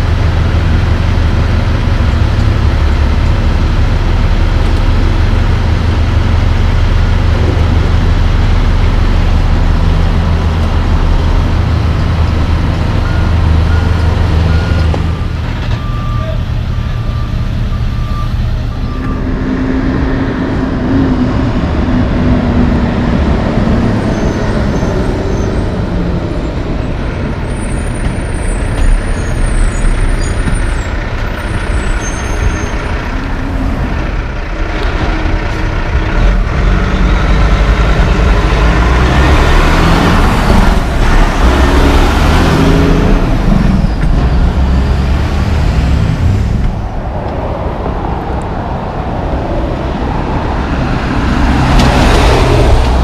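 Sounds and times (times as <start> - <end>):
street traffic rumble: 0.0 - 53.0
truck accelerating: 0.0 - 53.0.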